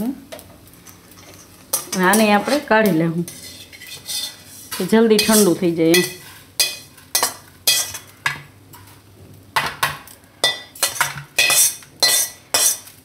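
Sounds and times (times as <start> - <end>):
metal spoon scraping and clinking: 1.2 - 8.1, 10.4 - 12.9.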